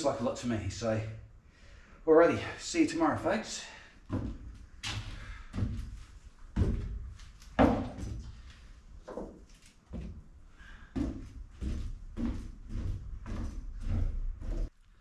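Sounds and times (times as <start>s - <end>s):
footsteps on plywood floor: 3.2s - 14.7s.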